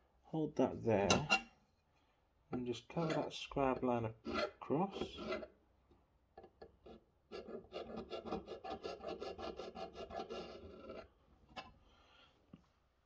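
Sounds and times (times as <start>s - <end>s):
scriber scratching on metal: 4.2s - 5.5s, 6.9s - 11.1s.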